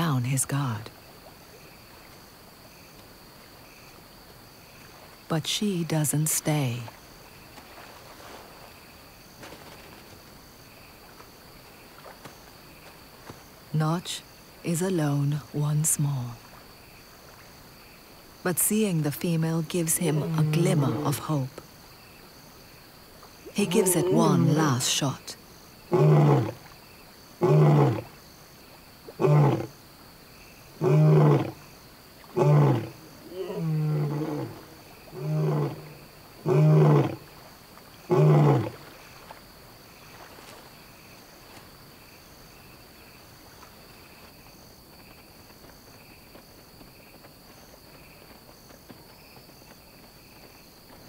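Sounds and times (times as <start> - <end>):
crickets trilling: 0.0 - 51.0
lion roaring: 23.5 - 24.6, 25.9 - 26.6, 27.4 - 28.1, 29.2 - 29.7, 30.8 - 31.6, 32.3 - 37.2, 38.1 - 38.8.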